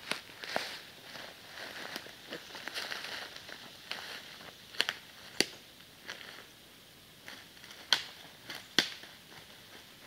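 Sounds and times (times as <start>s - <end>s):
footsteps through dry leaves: 0.0s - 5.4s
sticks snapping: 4.8s - 5.6s, 7.7s - 9.1s.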